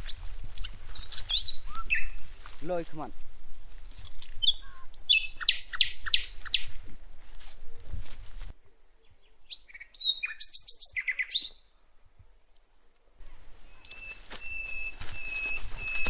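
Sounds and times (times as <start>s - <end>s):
small birds chirping: 0.0s - 2.8s, 4.1s - 6.8s, 8.8s - 12.0s, 13.2s - 16.0s.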